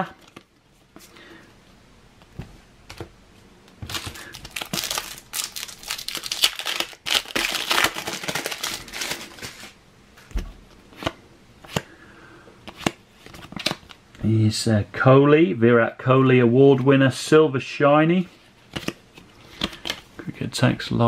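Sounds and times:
foil wrapper crinkling: 0:03.9 - 0:09.8.

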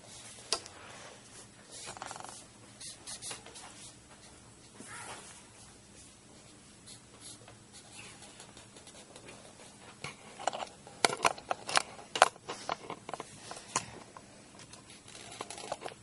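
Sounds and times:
marker scraping across paper: 0:01.7 - 0:04.3.

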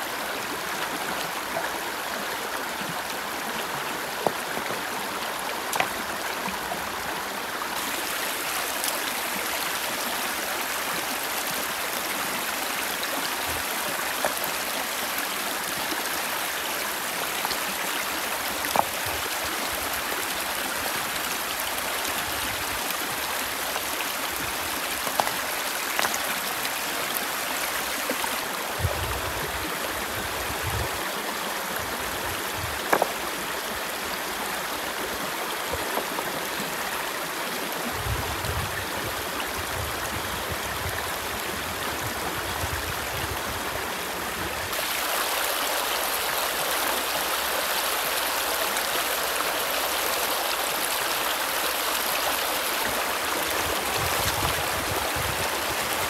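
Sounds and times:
river rushing over rocks: 0:00.0 - 0:56.0
river stones knocking: 0:24.9 - 0:26.3, 0:32.8 - 0:33.2.

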